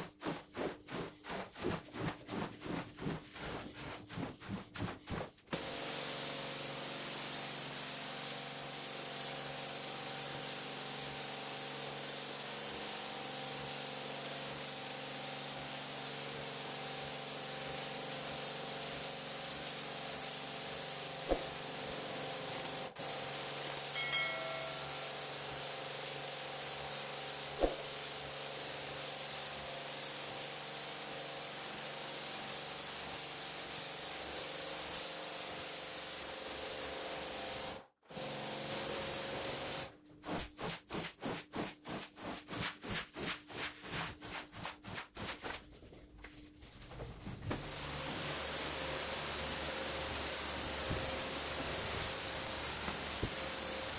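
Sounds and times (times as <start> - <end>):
squeegee strokes pushing water: 0.0 - 5.5
pressure washer spraying water: 5.5 - 39.9, 47.6 - 53.9.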